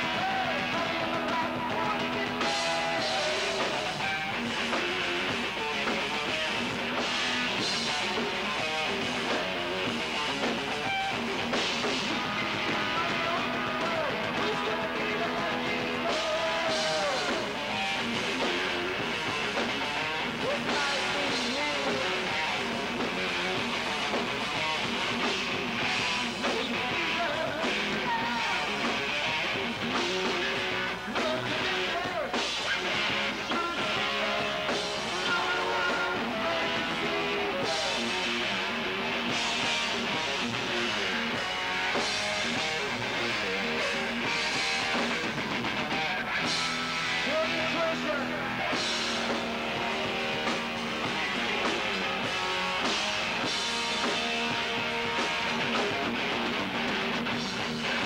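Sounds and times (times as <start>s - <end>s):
person singing into microphone: 0.0s - 4.1s, 12.7s - 17.6s, 26.6s - 28.8s, 30.2s - 38.2s
drums: 0.0s - 58.0s
electric guitar: 0.0s - 58.0s.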